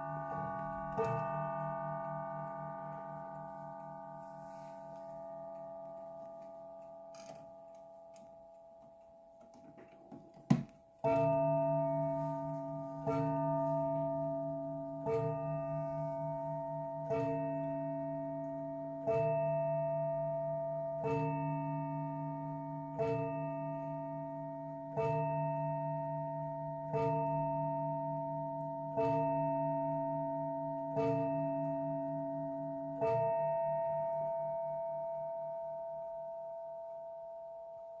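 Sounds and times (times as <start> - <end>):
clock striking: 0.0 - 3.7, 11.0 - 18.0, 26.9 - 27.4, 30.8 - 31.8, 33.0 - 34.1.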